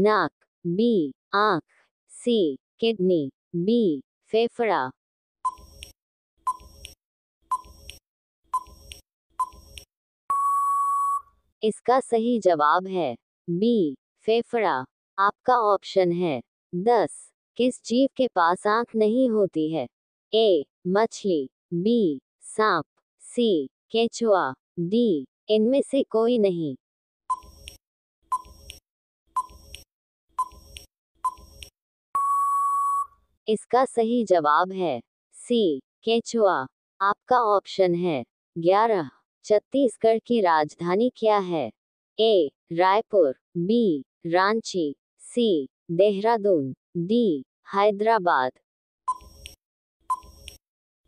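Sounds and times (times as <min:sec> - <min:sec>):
countdown timer ticks: 0:06.5 - 0:08.0, 0:08.6 - 0:10.7, 0:27.3 - 0:28.8, 0:29.4 - 0:29.8, 0:30.4 - 0:33.1, 0:49.1 - 0:50.6
long steady beep: 0:10.3 - 0:11.3, 0:32.2 - 0:33.2.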